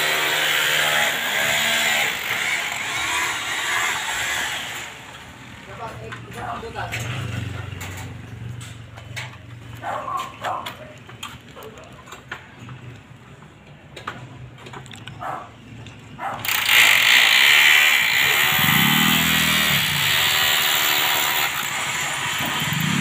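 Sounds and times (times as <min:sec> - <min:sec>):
loud engine running: 0:18.0 - 0:20.6.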